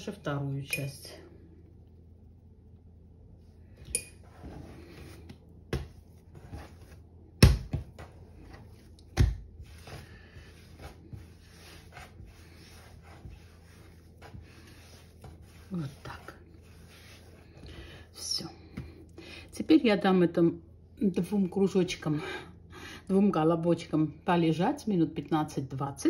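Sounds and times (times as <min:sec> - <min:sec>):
hands rubbing dough: 0:04.2 - 0:17.7.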